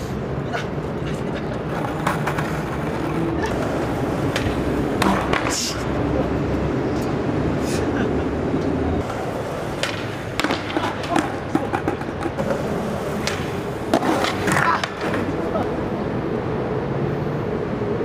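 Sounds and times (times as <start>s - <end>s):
skateboard wheels rolling on asphalt: 0.0s - 18.0s
skateboard clacks: 1.1s - 5.9s, 8.5s - 15.6s
skateboard scrape: 1.1s - 5.9s.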